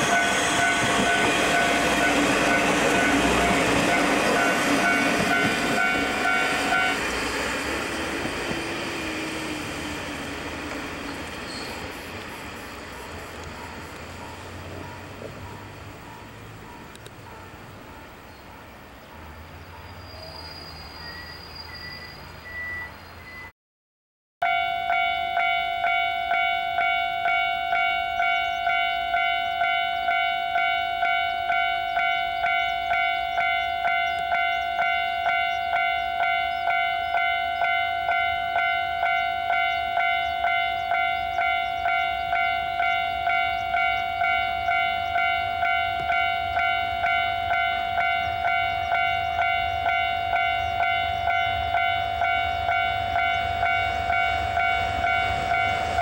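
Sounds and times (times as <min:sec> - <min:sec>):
level crossing alarm ringing: 0:00.0 - 0:07.7, 0:24.4 - 0:56.0
diesel locomotive rumble: 0:00.0 - 0:23.4, 0:25.9 - 0:56.0.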